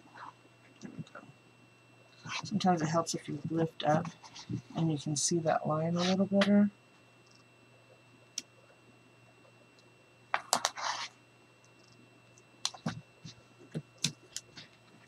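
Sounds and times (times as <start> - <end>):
faint steady hum: 0.0 - 15.0
scratchy rasp of tape: 10.5 - 11.1.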